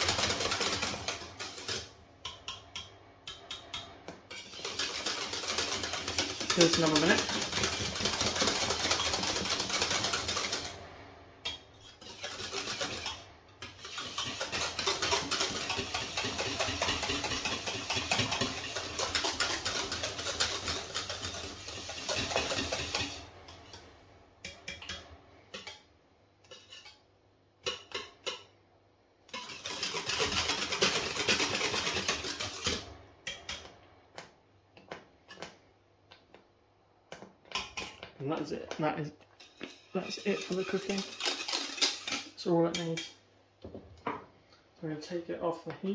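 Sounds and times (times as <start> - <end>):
whisk scraping and clinking in pan: 0.0 - 28.6, 29.3 - 33.7, 37.1 - 43.2.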